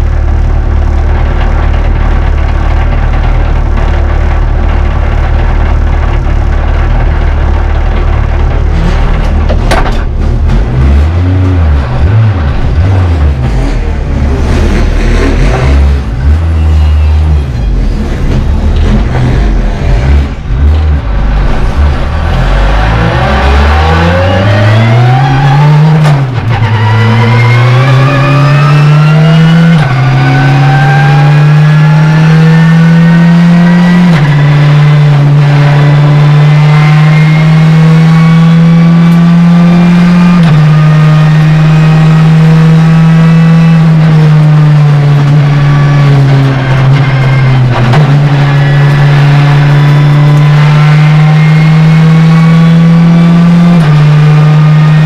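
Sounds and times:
race car engine accelerating: 0.0s - 55.0s.

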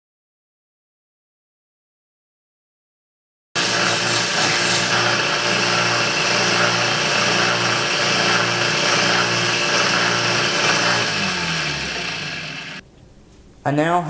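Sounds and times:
belt sander running: 3.6s - 12.8s
motor winding down: 3.6s - 12.8s.

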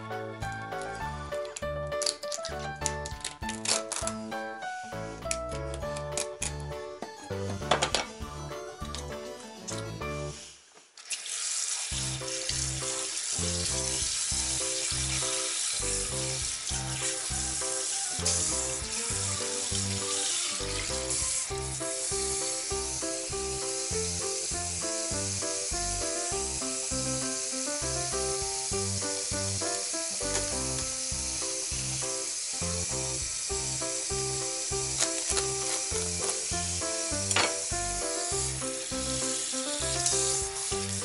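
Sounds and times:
tap running into metal sink: 37.2s - 37.7s.

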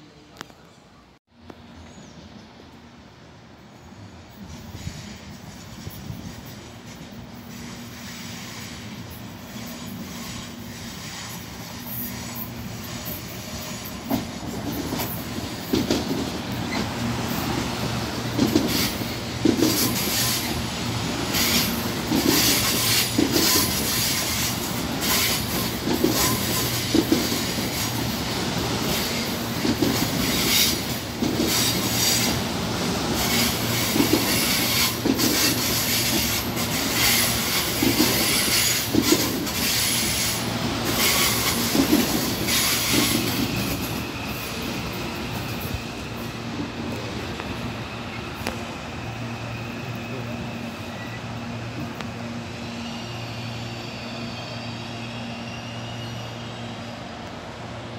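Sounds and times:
train wheels squealing: 3.7s - 57.9s
train wheels clacking over rail joints: 4.5s - 17.5s, 18.2s - 20.6s, 21.3s - 44.6s.

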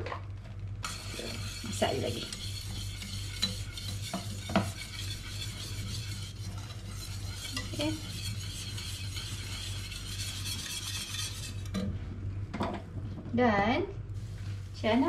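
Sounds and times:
whisk stirring sauce: 0.8s - 11.8s
whisk clinking against pan: 0.9s - 11.8s.

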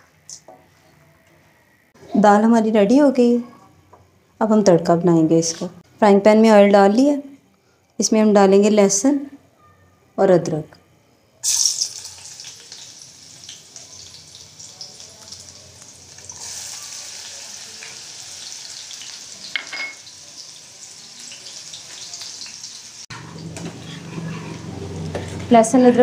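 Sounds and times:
garlic frying in oil: 11.4s - 23.6s.

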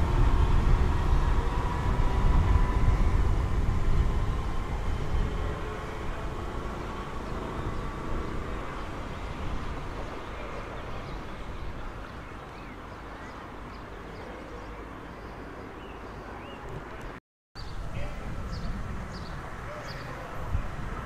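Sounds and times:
electric train pulling away: 0.0s - 12.0s
birds chirping: 4.4s - 20.7s.

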